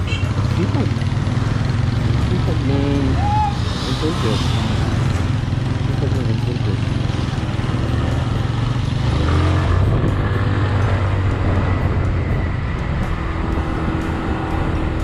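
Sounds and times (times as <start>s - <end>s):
motorcycle engine drone: 0.0s - 15.0s
wind and road noise: 0.0s - 15.0s.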